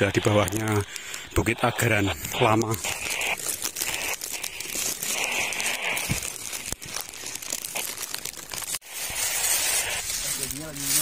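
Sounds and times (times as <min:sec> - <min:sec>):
dry leaves crunching underfoot: 0:03.4 - 0:11.0.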